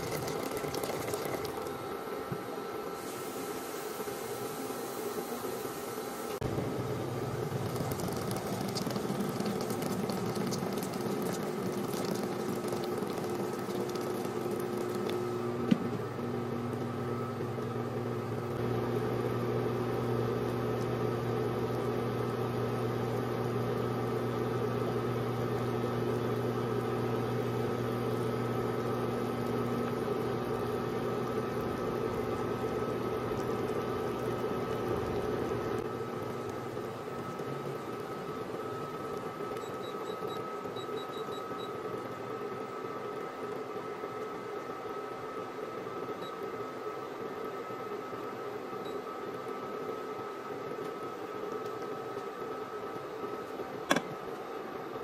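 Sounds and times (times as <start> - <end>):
water pouring and splashing: 0.0 - 1.8, 7.5 - 15.3
broth bubbling at a boil: 0.0 - 5.6, 6.4 - 55.0
steady hum: 0.0 - 41.0.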